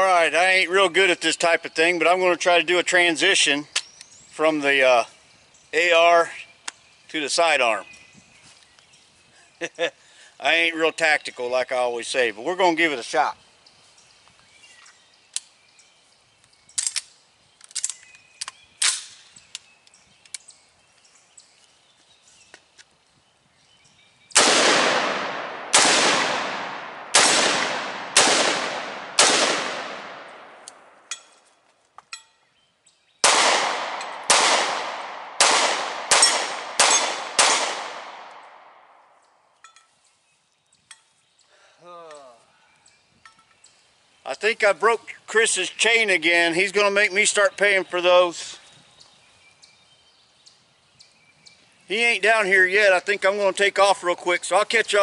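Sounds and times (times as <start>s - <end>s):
gun handling clicks: 16.8s - 20.5s
handgun shots: 24.4s - 30.7s, 33.2s - 38.5s
rifle shots echoing: 24.4s - 31.1s, 33.2s - 39.0s.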